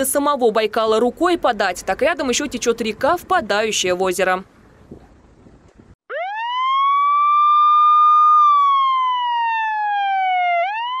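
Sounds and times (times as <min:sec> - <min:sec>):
wailing siren: 0:06.1 - 0:11.0.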